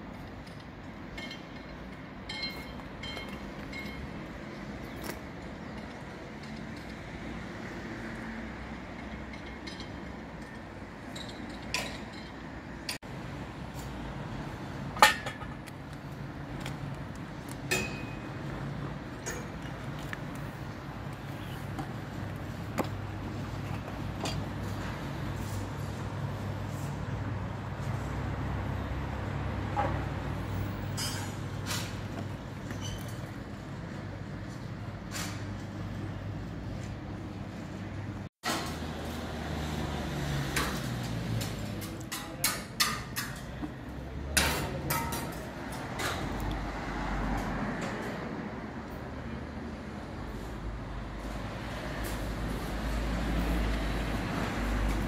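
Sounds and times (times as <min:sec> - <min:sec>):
sharp knocks and clinks: 0:00.4 - 0:05.2, 0:17.6 - 0:18.4.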